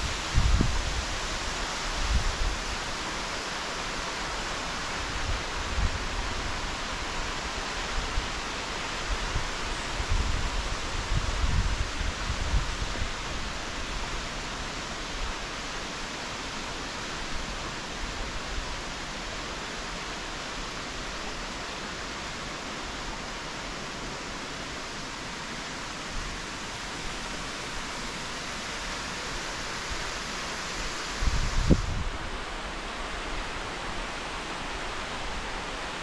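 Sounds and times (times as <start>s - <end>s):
waterfall rushing: 13.2s - 36.0s.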